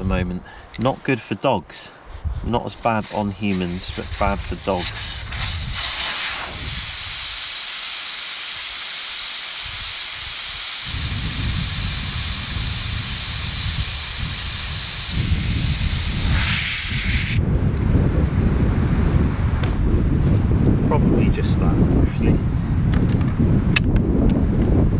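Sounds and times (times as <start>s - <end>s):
wind rumble on microphone: 2.1s - 7.4s, 9.6s - 24.9s
air hissing out of a tyre: 2.8s - 18.0s.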